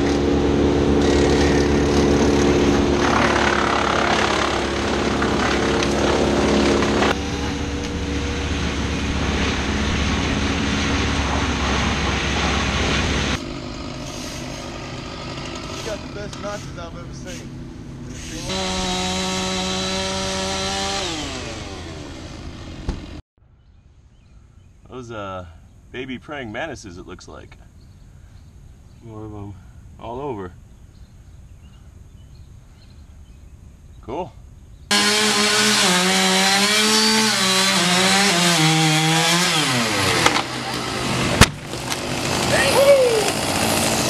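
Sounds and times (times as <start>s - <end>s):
chainsaw revving: 0.0s - 11.2s, 12.4s - 17.2s, 18.1s - 23.2s, 34.9s - 44.0s
tree trunk thudding on ground: 40.0s - 42.4s.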